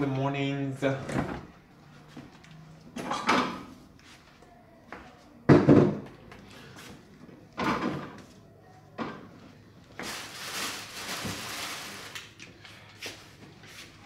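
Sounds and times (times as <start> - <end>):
kitchen knocks and rustling: 3.0 - 3.8, 5.5 - 6.2, 7.6 - 8.3.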